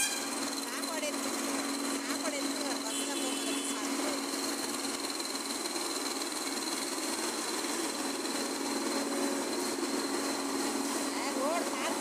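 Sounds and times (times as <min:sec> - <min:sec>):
diesel engines running: 0:00.0 - 0:12.0.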